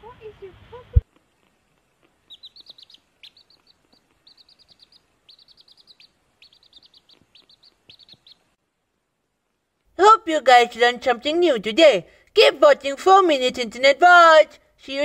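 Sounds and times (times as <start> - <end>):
chick peeping: 2.0 - 8.6.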